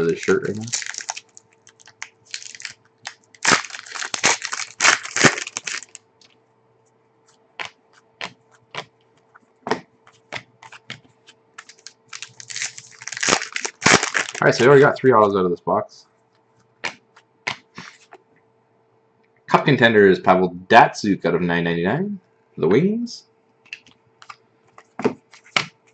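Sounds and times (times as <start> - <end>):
cards clicking and rustling: 0.0 - 6.0, 10.1 - 14.7
foil pack tearing and crinkling: 0.0 - 6.0, 11.6 - 14.7.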